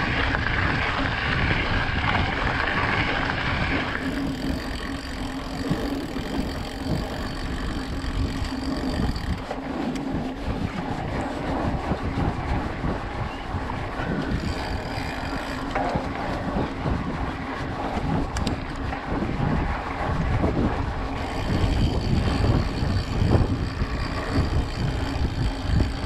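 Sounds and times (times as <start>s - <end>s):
bike tyres crunching on gravel: 0.0s - 7.4s
low rumble: 0.0s - 26.0s
wind buffeting microphone: 0.0s - 26.0s.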